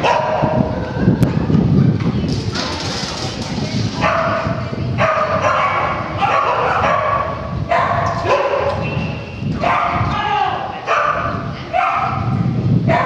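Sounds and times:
dog barking and yipping: 0:00.0 - 0:00.6, 0:04.0 - 0:09.0, 0:09.6 - 0:10.0, 0:10.9 - 0:11.2.

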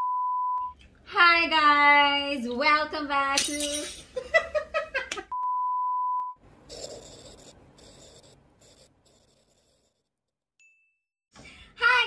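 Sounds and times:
pen scribbling: 0:06.7 - 0:10.1.

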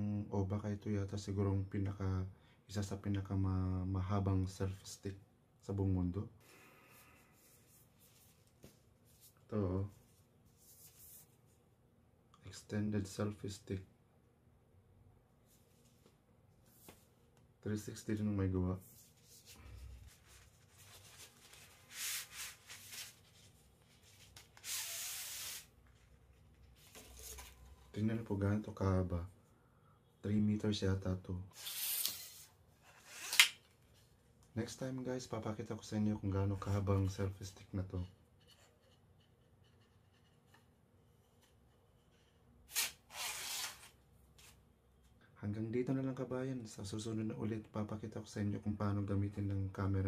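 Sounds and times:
selfie stick rubbing and scraping: 0:24.0 - 0:25.7, 0:31.6 - 0:33.5, 0:42.7 - 0:43.9.

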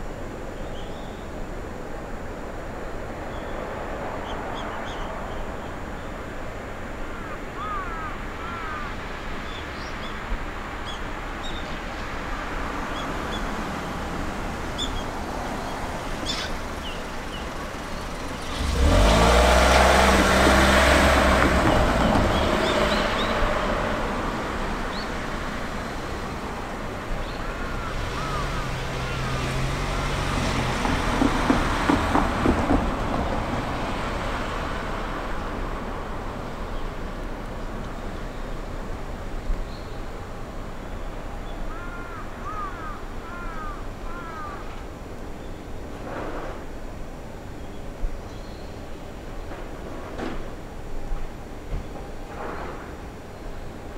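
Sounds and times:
cars driving over level crossing: 0:12.6 - 0:41.5.

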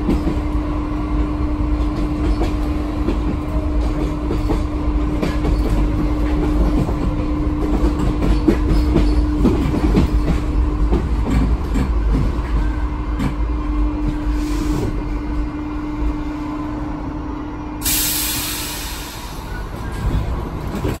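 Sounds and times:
train rumble and hum: 0:00.0 - 0:21.0
brake air hiss: 0:14.3 - 0:15.0, 0:17.8 - 0:19.6.

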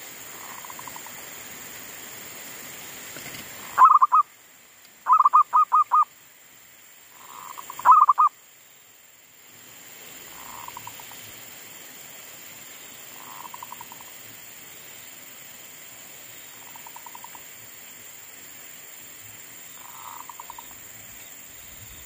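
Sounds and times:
wind hiss: 0:00.0 - 0:22.0
dove cooing: 0:03.6 - 0:04.2, 0:05.1 - 0:06.0, 0:07.2 - 0:08.3.

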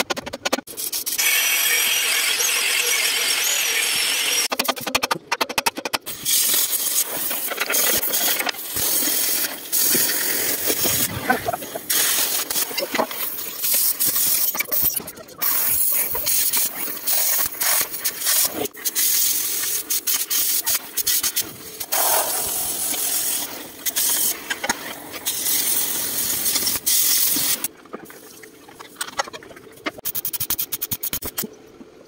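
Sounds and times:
cutting torch hissing: 0:06.1 - 0:14.6, 0:15.4 - 0:27.7.

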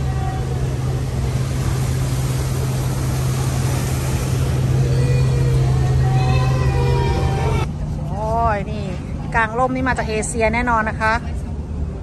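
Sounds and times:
wind and water rushing: 0:00.0 - 0:07.7
paddle wheel drive hum: 0:00.0 - 0:12.0.

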